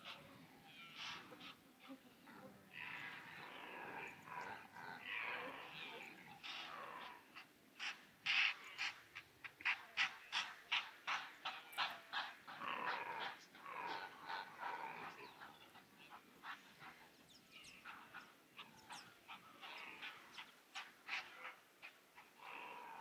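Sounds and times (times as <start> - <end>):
animal calls: 0.0 - 23.0.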